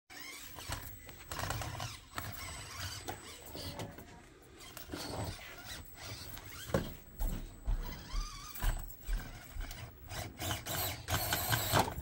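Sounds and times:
small electric motor whirring: 0.1s - 3.8s, 4.6s - 6.8s, 7.7s - 12.0s.

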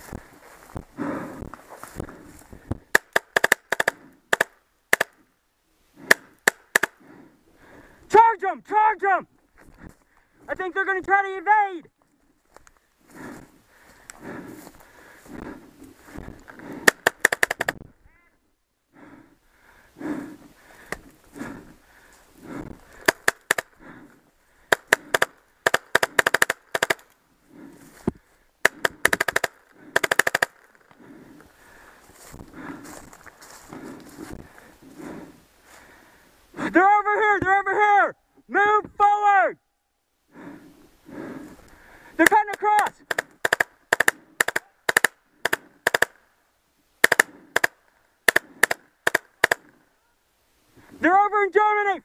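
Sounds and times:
paintball marker firing: 2.9s - 5.2s, 6.0s - 7.0s, 16.8s - 17.8s, 23.0s - 23.7s, 24.7s - 27.1s, 28.6s - 30.8s, 43.0s - 46.2s, 47.0s - 49.8s.

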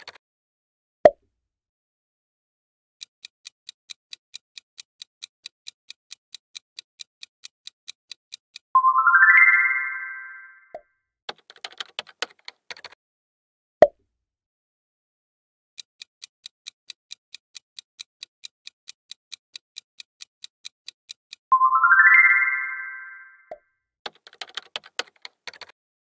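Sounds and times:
keyboard typing clicks: 0.0s - 0.2s, 11.3s - 13.0s, 23.5s - 25.8s
countdown timer ticking: 6.8s - 10.8s, 16.6s - 23.6s.

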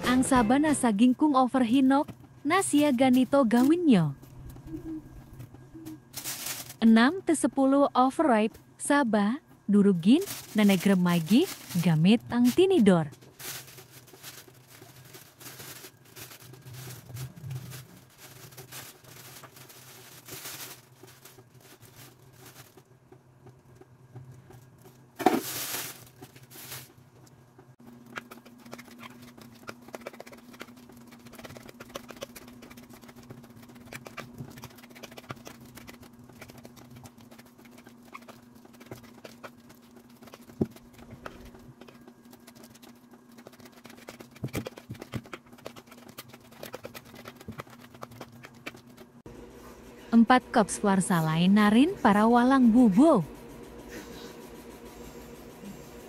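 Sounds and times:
steady low hum: 0.0s - 56.0s
scraping and plastic crinkling: 2.0s - 7.0s, 10.0s - 49.3s.

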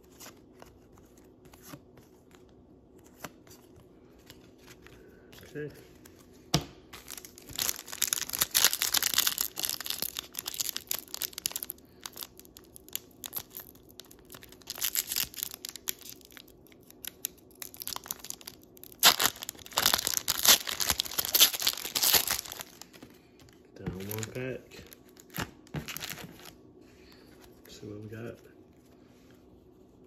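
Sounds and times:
foil wrapper crinkling and tearing: 6.9s - 23.0s, 24.0s - 26.6s.

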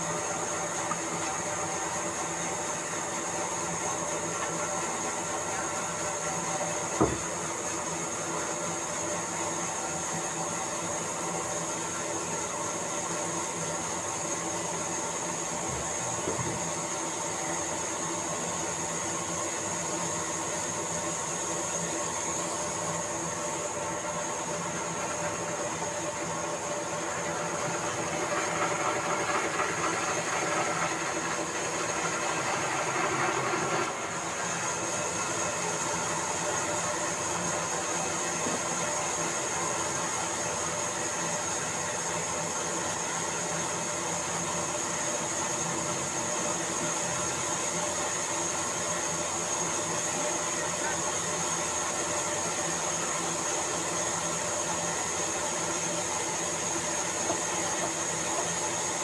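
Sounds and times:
band saw cutting wood: 27.5s - 34.6s.

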